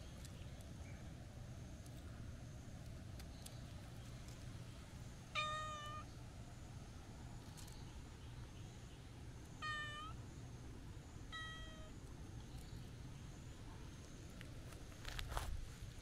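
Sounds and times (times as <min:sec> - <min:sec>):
cat meowing: 0:05.3 - 0:06.1, 0:09.6 - 0:10.2, 0:11.3 - 0:11.9.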